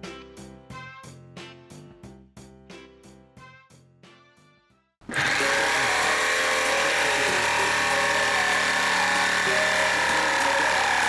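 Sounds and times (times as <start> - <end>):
electric jigsaw cutting wood: 5.1 - 11.0.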